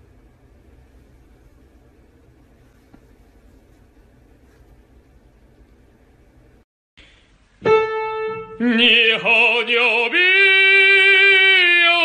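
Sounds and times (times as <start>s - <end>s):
operatic singing with vibrato: 8.5s - 12.0s.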